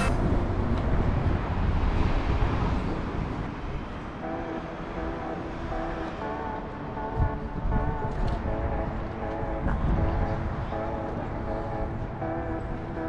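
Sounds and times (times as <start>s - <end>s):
faint steady tones: 3.2s - 13.0s.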